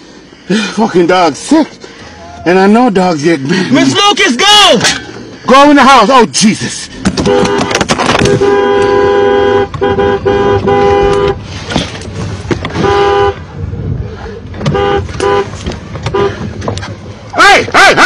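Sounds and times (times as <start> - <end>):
two-note car horn honking: 7.2 - 11.4.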